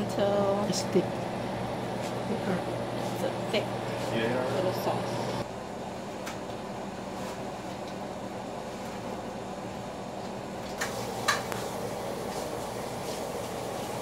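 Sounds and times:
syrup boiling in a pot: 10.8 - 14.0.

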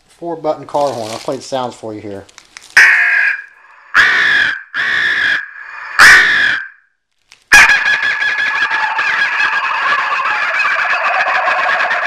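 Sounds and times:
horn speaker playing bird calls: 2.8 - 6.8.

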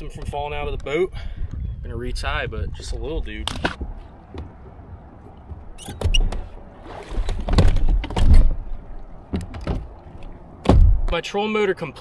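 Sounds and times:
thumps and knocks on boat deck: 3.6 - 6.5, 7.1 - 8.6, 9.3 - 9.9, 10.6 - 11.2.

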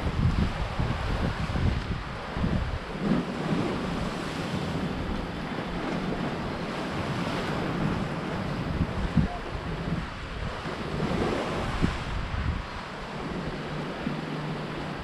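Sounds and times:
surf washing on shore: 0.0 - 15.0
wind buffeting microphone: 0.0 - 15.0.

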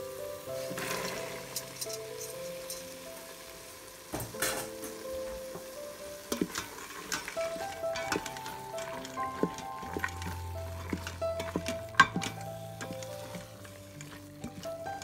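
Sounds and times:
food sizzling: 0.0 - 15.0
light background music: 0.0 - 15.0
beans poured into pot: 0.5 - 3.0
wooden spatula scraping pot: 6.3 - 15.0.

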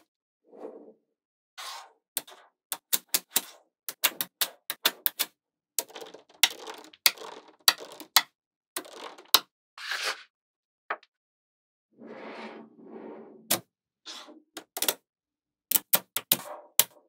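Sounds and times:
magnetic balls clicking together: 2.7 - 9.4
magnetic balls rattling: 5.8 - 8.2.

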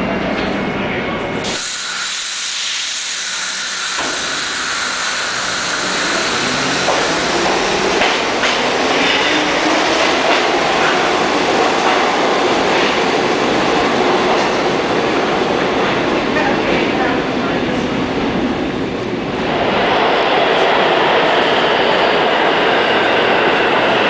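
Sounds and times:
subway train rumble: 0.0 - 24.0
wheels clacking on rails: 5.5 - 17.1.

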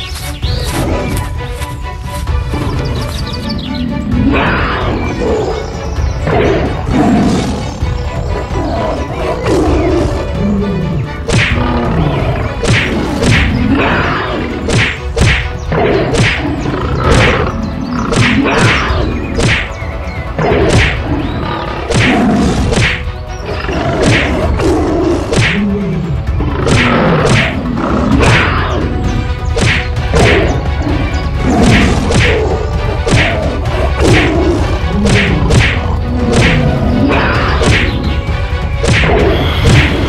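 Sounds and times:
background music: 0.0 - 40.0
cartoon whacks and thuds: 11.3 - 11.6, 12.6 - 13.5, 14.7 - 15.5, 16.1 - 16.4, 19.4 - 19.7, 21.9 - 23.0, 25.3 - 25.6, 29.6 - 30.5, 35.0 - 36.6, 38.8 - 39.9
animal growls: 23.4 - 29.0.

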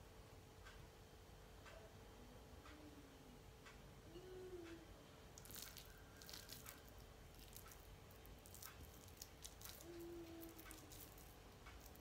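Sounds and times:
fingers squishing soft mixture: 5.3 - 12.0.

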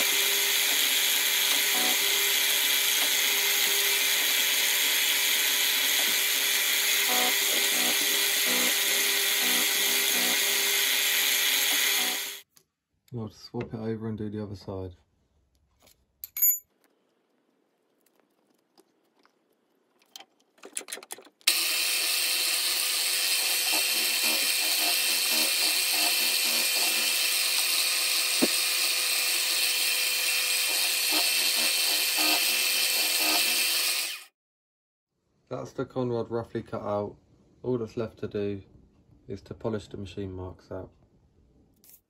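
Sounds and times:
ringing metal clink: 16.2 - 16.7.

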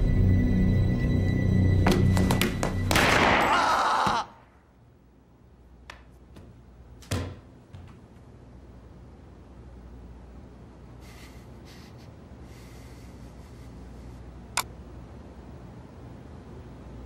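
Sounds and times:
pistol shot ringing: 2.9 - 3.5.

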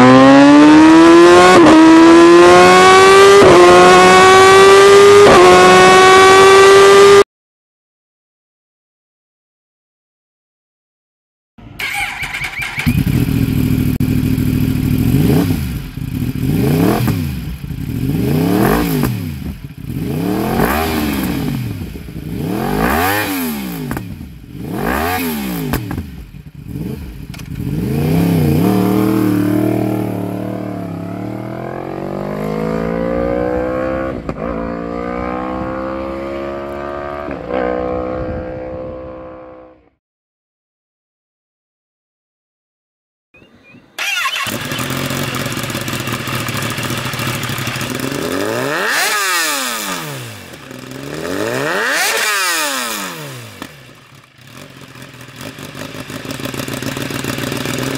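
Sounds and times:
motorcycle accelerating through gears: 0.0 - 7.2, 11.7 - 39.9, 44.0 - 57.9
motorcycle engine revving: 0.0 - 7.2, 11.6 - 39.8, 44.0 - 57.9.

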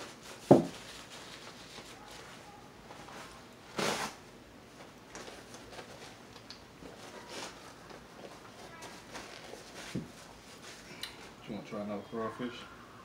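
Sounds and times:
paper napkin rustling: 0.0 - 10.9
quiet table-handling noises: 4.8 - 11.4.

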